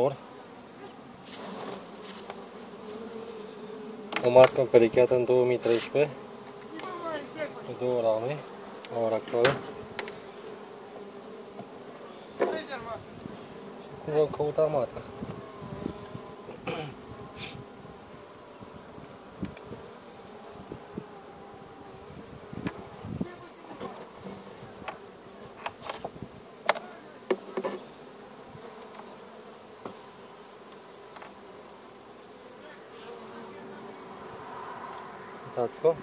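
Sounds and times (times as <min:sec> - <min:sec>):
bees buzzing: 0:00.0 - 0:36.0.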